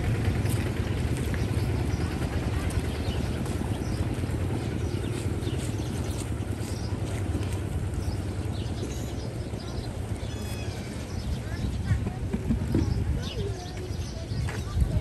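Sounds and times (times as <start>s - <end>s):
small engine droning: 0.0s - 11.7s.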